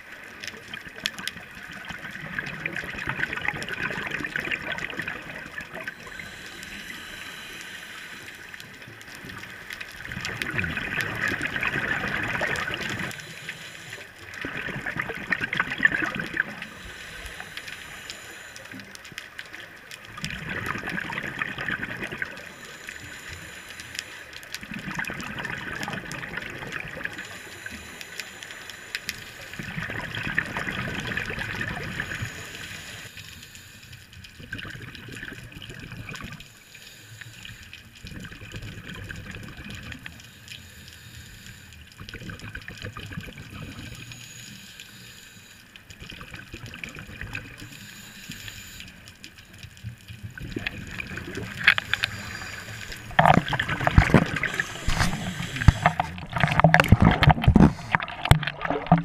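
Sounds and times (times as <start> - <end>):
exhaled bubbles gurgling: 0.0 - 33.2, 34.2 - 36.5, 37.9 - 40.2, 41.9 - 44.5, 45.9 - 59.0
diver breathing through regulator: 5.9 - 8.8, 11.9 - 14.3, 15.9 - 19.0, 21.7 - 24.6, 27.0 - 34.1, 36.4 - 38.0, 40.1 - 42.0, 43.7 - 45.8, 47.4 - 49.2, 50.9 - 59.0.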